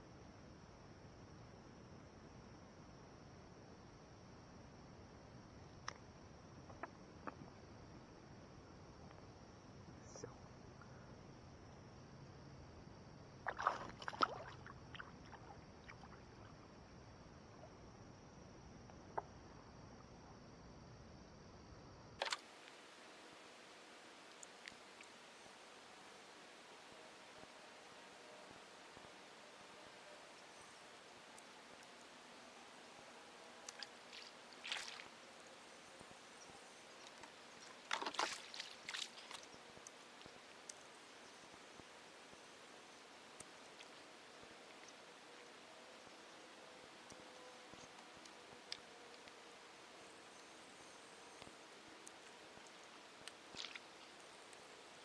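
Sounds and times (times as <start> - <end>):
faint steady hiss: 0.0 - 55.0
water splashes: 13.4 - 16.6, 22.2 - 22.8, 33.6 - 35.5, 37.0 - 40.9, 52.1 - 55.0.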